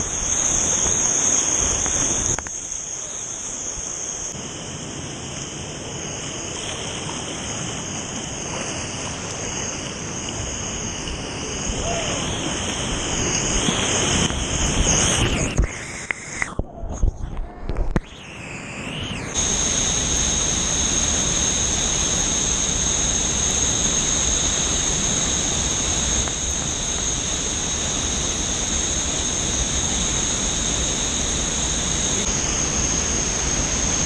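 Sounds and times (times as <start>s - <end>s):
thin high whine: 0.0s - 34.0s
roar of waterfall: 4.4s - 15.2s.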